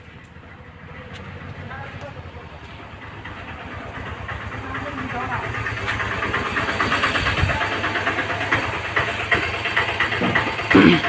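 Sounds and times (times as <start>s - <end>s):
engine running with fast pulse: 0.0s - 11.0s.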